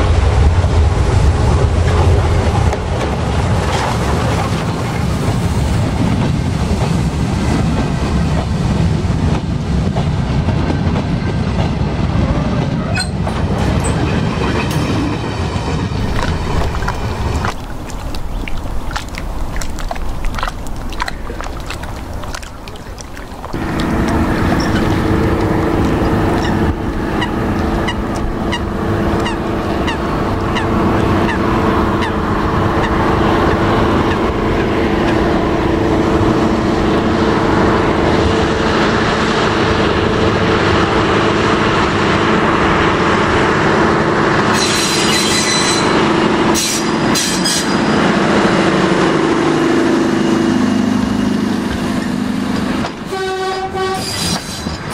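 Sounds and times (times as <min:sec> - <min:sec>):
diesel locomotive engine: 0:00.0 - 0:54.9
geese honking: 0:22.6 - 0:33.0.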